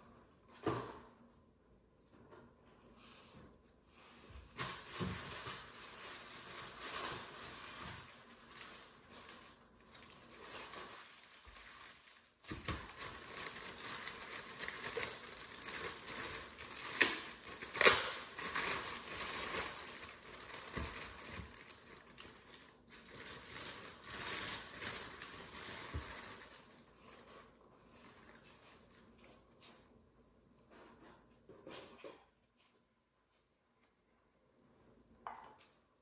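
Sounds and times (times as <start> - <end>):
plastic bag crinkling: 4.6 - 29.0.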